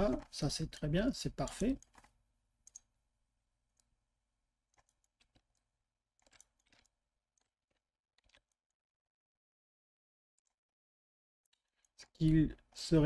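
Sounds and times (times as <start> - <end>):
mouse and keyboard clicks: 1.4 - 2.9, 6.2 - 7.5.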